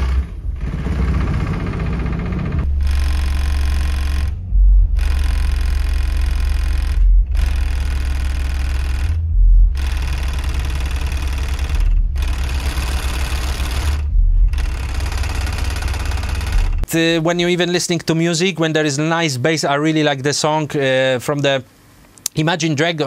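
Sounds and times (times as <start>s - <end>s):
heavy low rumble: 0.0s - 17.8s.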